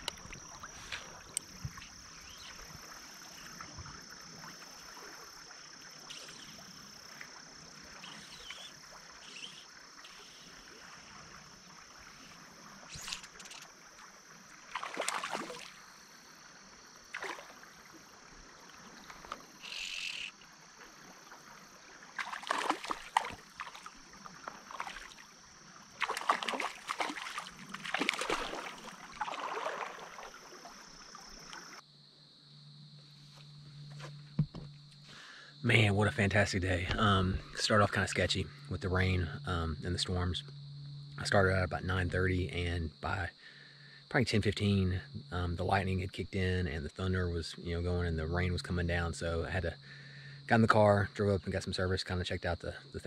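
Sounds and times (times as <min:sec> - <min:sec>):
flowing stream water: 0:00.0 - 0:31.8
fish splashing at water surface: 0:14.5 - 0:15.8, 0:17.1 - 0:18.0, 0:22.2 - 0:25.3, 0:25.9 - 0:31.7.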